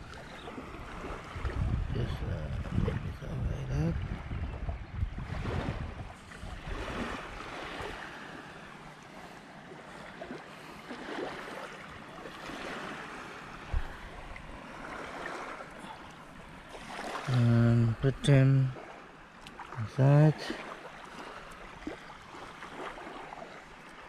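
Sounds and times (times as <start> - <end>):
surf washing on beach: 0.0 - 24.0
wind buffeting microphone: 0.8 - 7.9.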